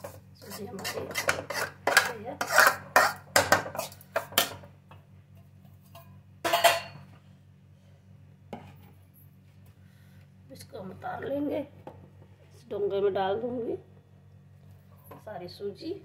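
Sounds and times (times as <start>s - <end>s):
steel spoon scraping a pan: 0.0s - 4.0s.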